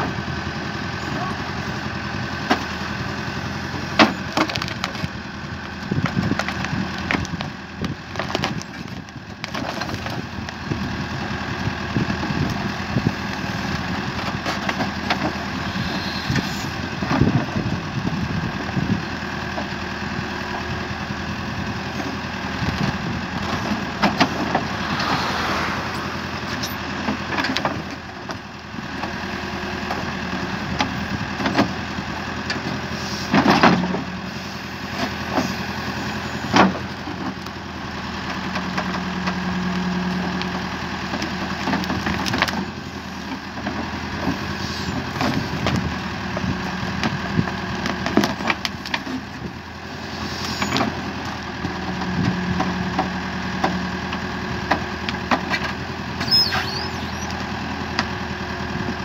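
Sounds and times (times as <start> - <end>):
diesel engine running: 0.0 - 59.0
cracks and knocks of roots: 3.9 - 10.9, 40.2 - 44.4, 45.0 - 49.5.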